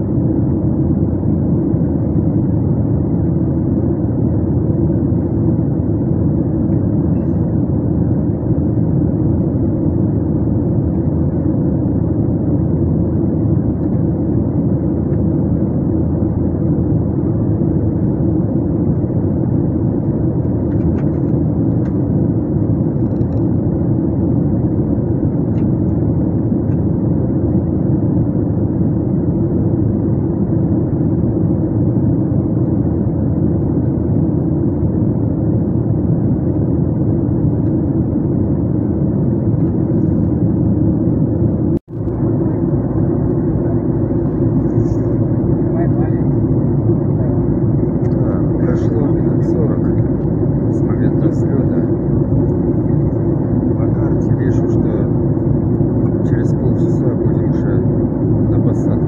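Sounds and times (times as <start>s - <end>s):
airliner cabin engine roar: 0.0s - 59.0s.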